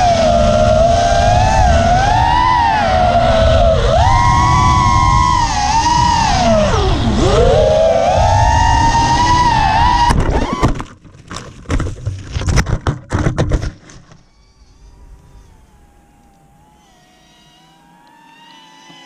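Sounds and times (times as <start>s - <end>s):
drone motors whining: 0.0s - 10.8s, 14.2s - 19.0s.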